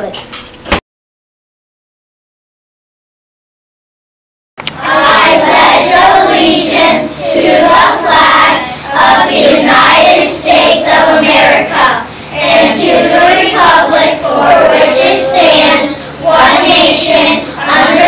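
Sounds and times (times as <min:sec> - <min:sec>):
children reciting in chorus: 0:04.8 - 0:18.0.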